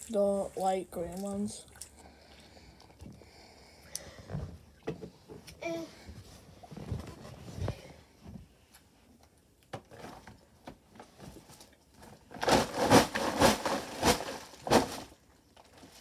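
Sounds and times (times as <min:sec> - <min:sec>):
gift bag rustling and crinkling: 0:12.3 - 0:16.0.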